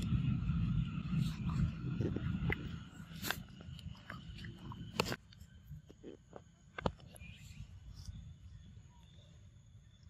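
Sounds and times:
low rumble: 0.0s - 5.9s
faint high chirp: 6.8s - 10.0s.

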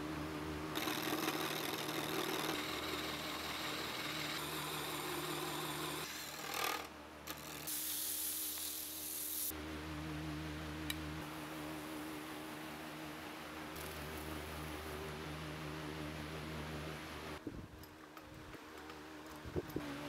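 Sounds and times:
wood lathe motor humming: 0.4s - 6.9s
chisel scraping spinning wood: 0.8s - 7.7s.

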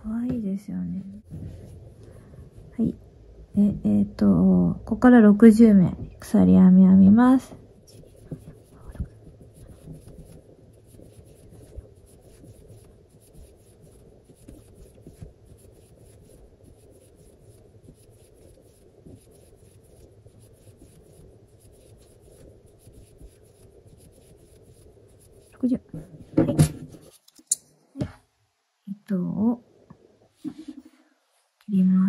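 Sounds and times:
crochet hook drawing yarn: 7.4s - 26.2s.

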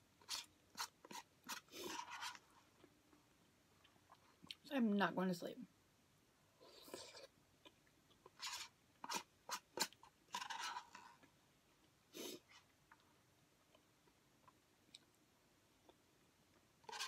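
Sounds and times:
plastic spoon scraping paper cup: 0.2s - 2.5s, 8.3s - 11.2s.

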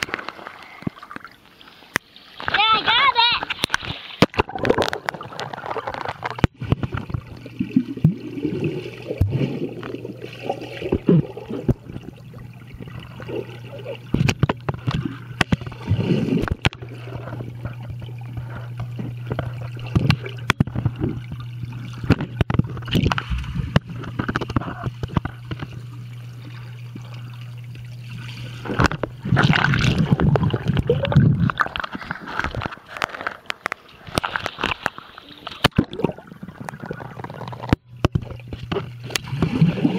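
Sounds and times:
underwater gurgling: 0.0s - 39.9s
water sloshing and bubbling: 0.0s - 39.9s
steady low hum: 5.2s - 31.7s.

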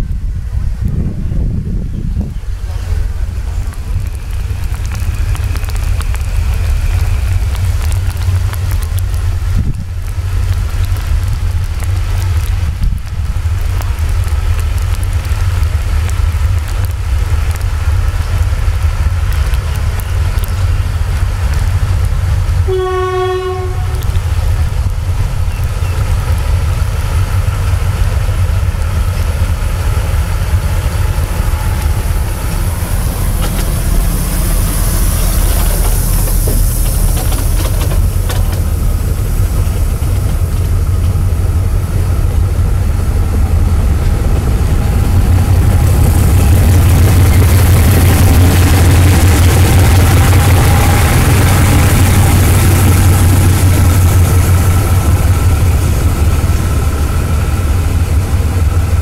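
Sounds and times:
diesel locomotive engine drone: 0.0s - 59.0s
locomotive horn blast: 22.7s - 24.2s.

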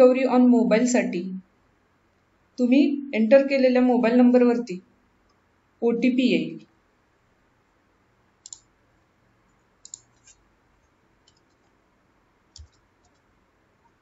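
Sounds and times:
mouse and keyboard clicks: 8.4s - 8.7s, 9.8s - 10.4s, 11.2s - 11.8s, 12.5s - 13.3s.

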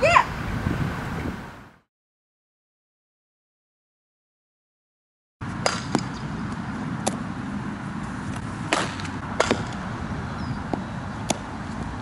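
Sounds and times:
outdoor background noise: 0.0s - 1.9s, 5.4s - 12.0s
bat hitting ball: 5.6s - 6.2s, 8.3s - 9.9s.

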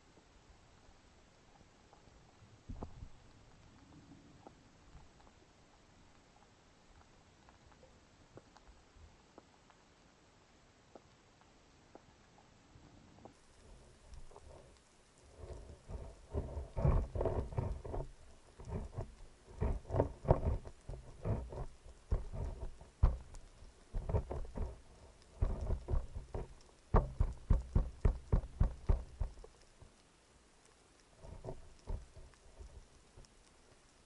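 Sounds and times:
underwater handling knocks and crackle: 2.6s - 3.7s, 13.2s - 30.1s, 31.0s - 34.0s.

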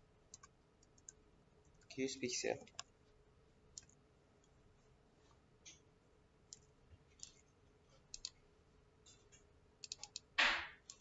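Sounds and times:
faint steady hum: 0.0s - 11.0s
keyboard keystrokes: 9.8s - 11.0s.

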